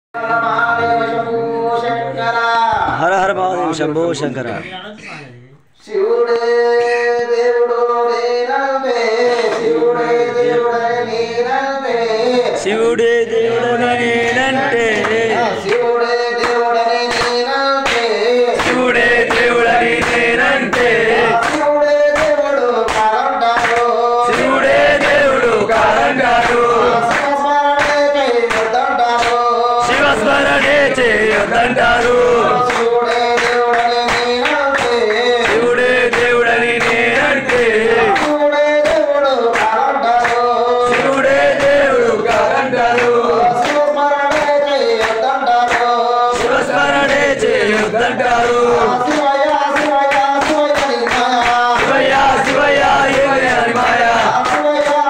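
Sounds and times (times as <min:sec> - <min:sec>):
man singing through loudspeaker: 0:00.1 - 0:55.0
hands clapping in time: 0:14.8 - 0:55.0.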